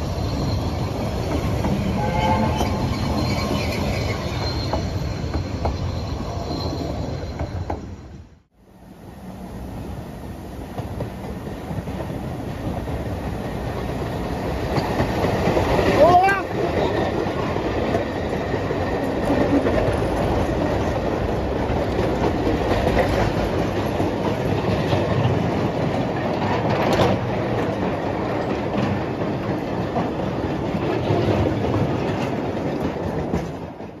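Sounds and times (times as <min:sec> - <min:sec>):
wagon wheels rumbling on rails: 0:10.8 - 0:34.0.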